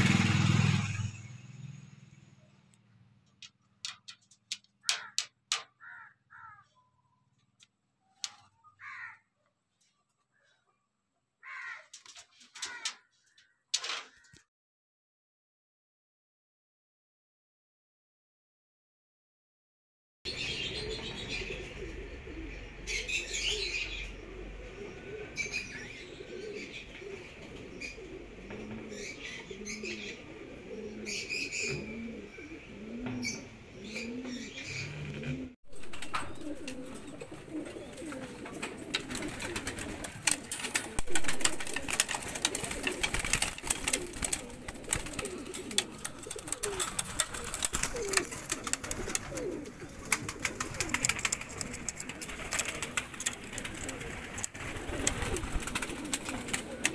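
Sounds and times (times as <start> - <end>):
birds chirping: 0.0 - 14.4, 20.3 - 56.9
clicks and rustling: 3.3 - 5.8, 11.9 - 14.4, 35.7 - 56.9
pigeons cooing: 3.4 - 6.7, 11.5 - 13.0, 20.3 - 56.9
wing flaps: 35.0 - 56.9.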